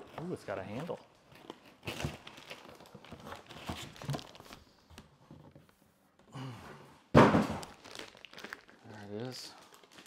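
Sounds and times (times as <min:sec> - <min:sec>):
plastic wrap crinkling: 0:00.0 - 0:05.1, 0:07.5 - 0:10.0.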